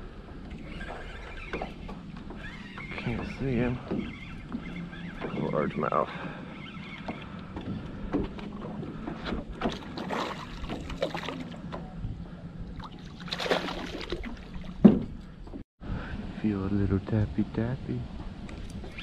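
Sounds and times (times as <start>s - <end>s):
fish splashing at the surface: 13.2s - 14.6s.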